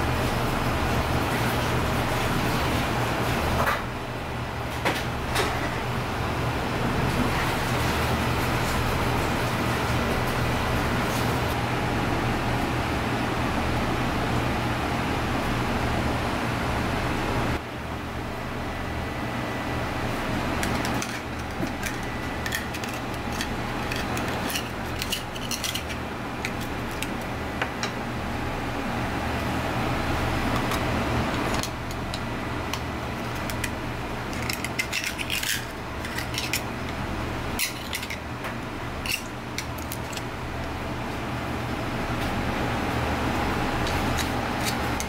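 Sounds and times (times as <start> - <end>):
steady low hum: 0.0 - 45.0
knife scraping scallop shells: 21.8 - 26.7, 34.3 - 36.7.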